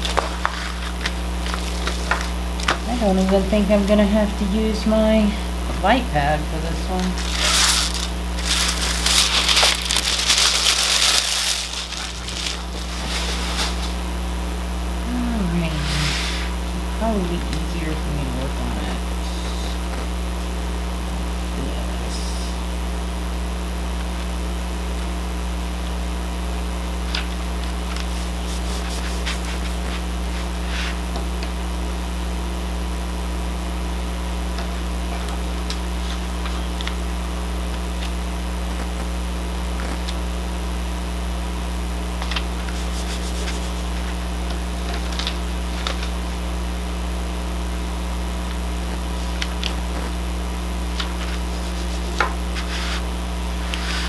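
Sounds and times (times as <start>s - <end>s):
steady low hum: 0.0s - 54.0s
paper rustling and tapping: 7.3s - 13.9s, 42.2s - 43.6s, 51.0s - 53.0s.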